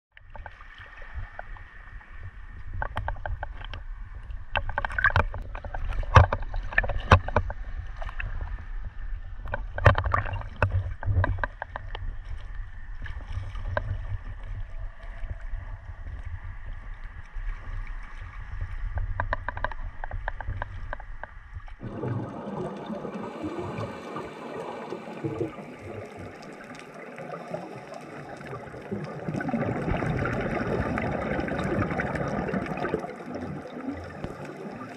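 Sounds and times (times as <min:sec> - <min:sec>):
small waves splashing: 0:00.2 - 0:34.9
underwater hiss with bubbling: 0:21.8 - 0:34.9.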